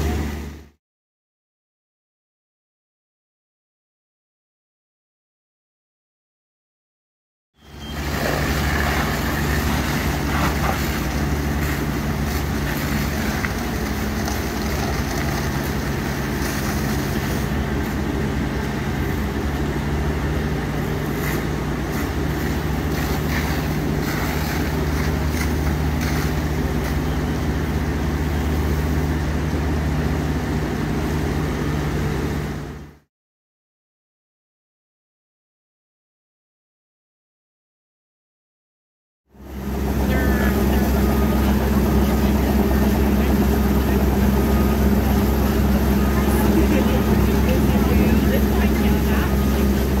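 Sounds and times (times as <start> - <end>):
diesel engine humming: 0.0 - 0.8, 7.6 - 33.1, 39.3 - 50.0
water rushing: 39.8 - 50.0.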